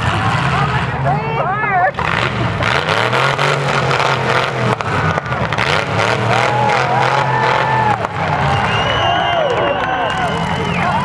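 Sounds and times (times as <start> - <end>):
car engines revving hard: 0.0 - 11.0.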